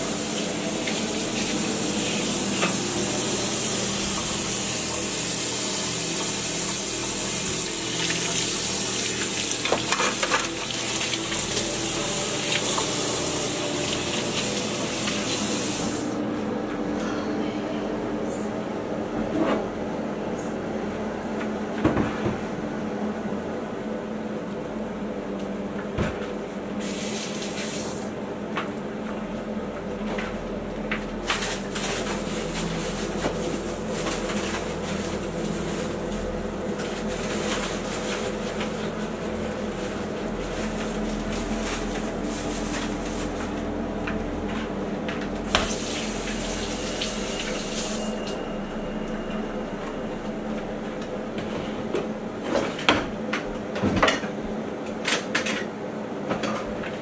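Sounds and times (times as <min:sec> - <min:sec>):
tap water running into sink: 0:00.0 - 0:05.3, 0:06.2 - 0:16.1
steady low hum: 0:00.0 - 0:25.8, 0:28.2 - 0:55.0.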